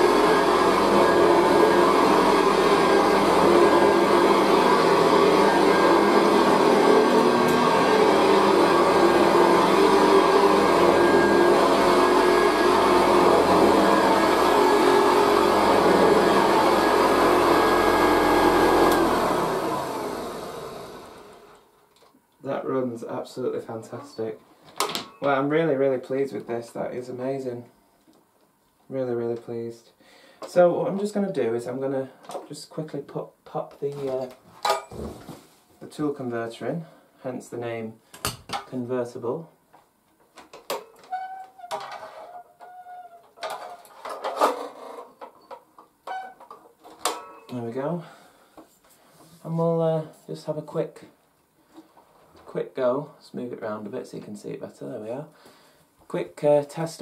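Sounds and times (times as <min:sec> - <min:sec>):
motor and fan winding down: 0:00.0 - 0:21.6
upright vacuum cleaner running: 0:00.0 - 0:21.7
parts clattering: 0:33.9 - 0:35.4, 0:41.7 - 0:42.3, 0:43.3 - 0:47.5
parts rubbing squeaks: 0:41.0 - 0:44.0.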